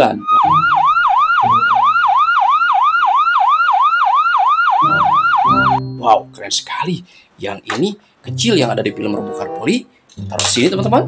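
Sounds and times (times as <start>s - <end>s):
emergency siren yelping: 0.0s - 5.8s.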